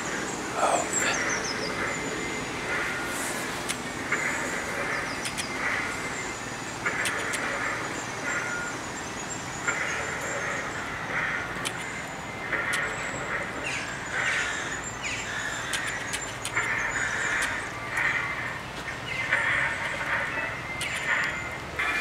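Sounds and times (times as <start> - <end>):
bird harsh calls: 0.0 - 3.2, 9.6 - 22.0.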